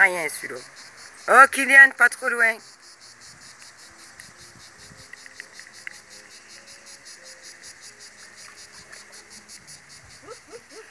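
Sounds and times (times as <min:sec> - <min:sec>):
insect chirping: 0:00.0 - 0:10.9.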